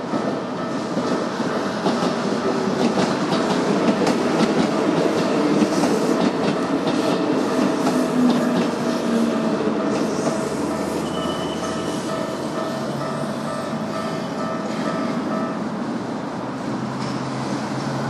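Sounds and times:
train wheels clattering over rails: 0:00.0 - 0:15.6
crossing signal warning tone: 0:06.2 - 0:15.7.

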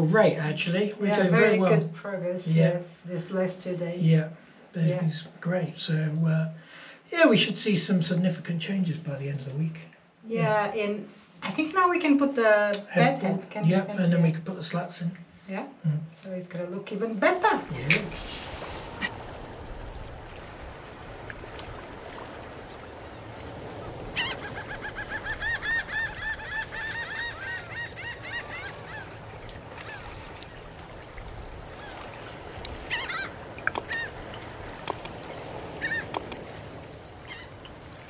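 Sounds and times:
bird calling: 0:22.8 - 0:30.9, 0:31.6 - 0:38.0.

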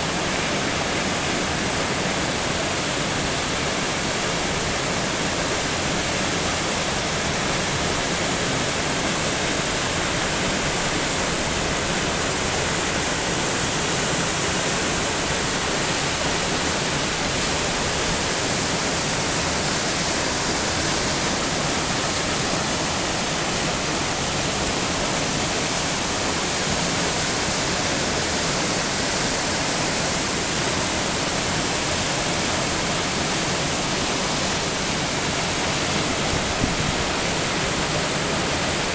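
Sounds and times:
stream pouring over rocks: 0:00.0 - 0:38.9
waterfall rushing: 0:00.0 - 0:38.9.

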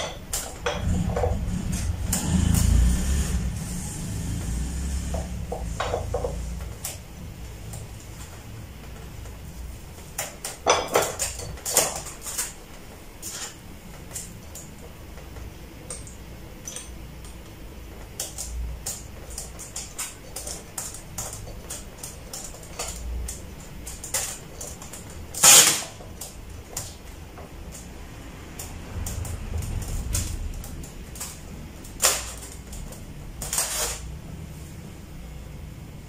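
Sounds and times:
plastic scraping: 0:18.0 - 0:27.3, 0:28.7 - 0:34.2.

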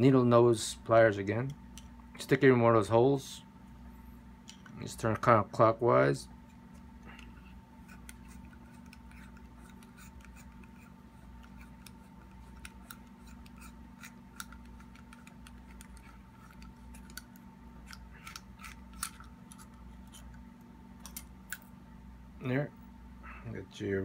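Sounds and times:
pliers clicking and scratching metal: 0:07.8 - 0:20.4.

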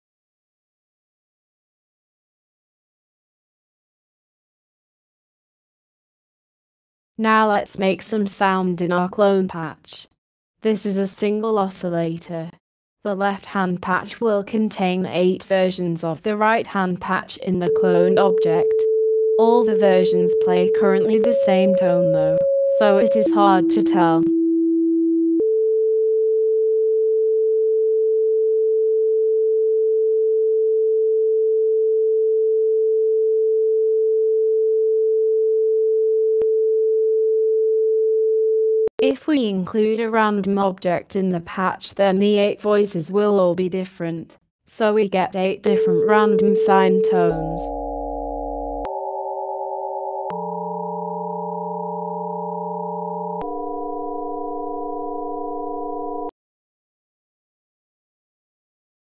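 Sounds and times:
steady sine tone: 0:45.8 - 0:56.3.

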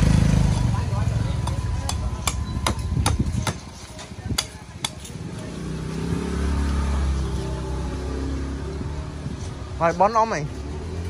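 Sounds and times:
passing vehicle engine: 0:00.0 - 0:03.4, 0:05.0 - 0:11.0
cleaver chopping coconut husk: 0:00.4 - 0:05.2.

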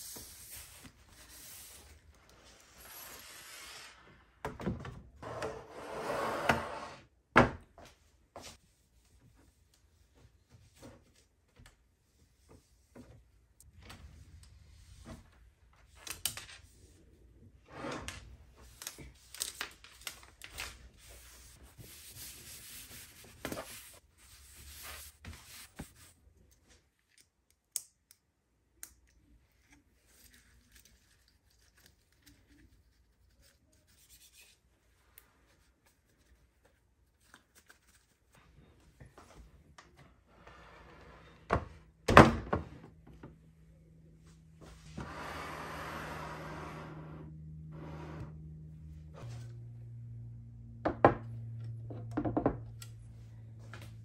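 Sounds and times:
paper towel wiping desk: 0:00.0 - 0:04.0, 0:20.6 - 0:26.2.

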